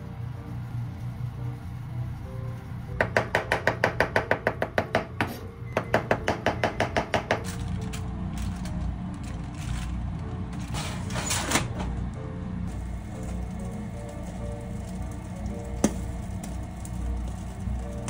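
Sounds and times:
drawer sliding shut: 10.6s - 12.0s.

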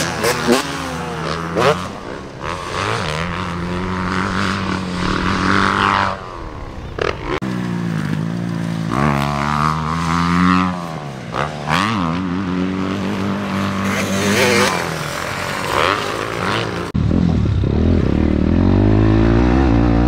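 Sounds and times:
dirt bike engines revving: 0.0s - 20.0s.

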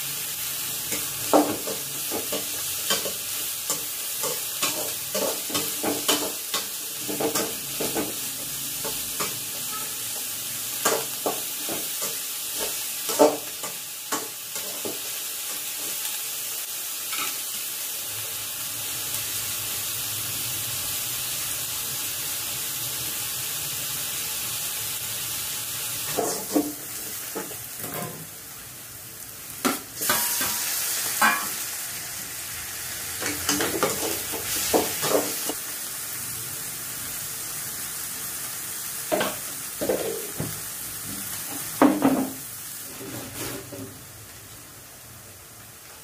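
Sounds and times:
vegetables sizzling in oil: 0.0s - 46.0s.

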